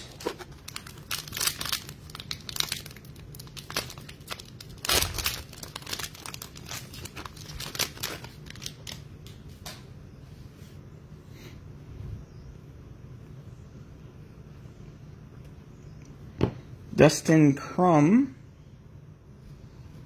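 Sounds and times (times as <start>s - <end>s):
foil wrapper crinkling and tearing: 0.0s - 9.4s.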